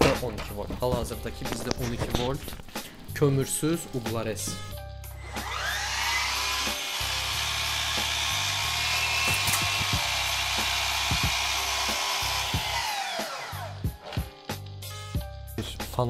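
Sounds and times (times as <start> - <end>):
miter saw whine: 5.2 - 13.8.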